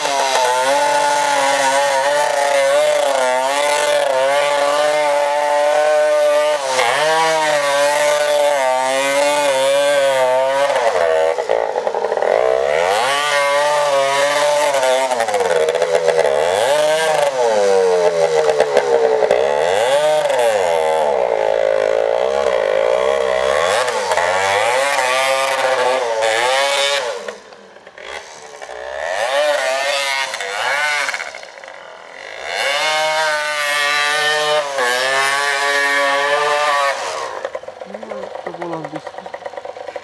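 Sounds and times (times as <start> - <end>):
dirt bike engine revving: 0.0 - 40.0.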